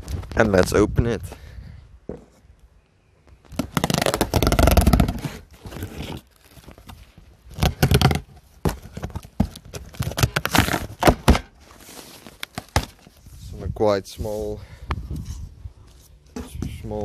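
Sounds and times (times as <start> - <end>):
packing tape tearing: 3.5 - 7.0, 9.6 - 11.2
cardboard flaps scraping: 3.5 - 13.2.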